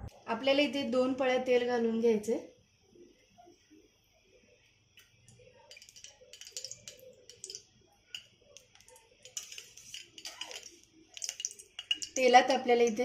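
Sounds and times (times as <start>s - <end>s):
utensils tapping on a pan: 5.7s - 12.3s.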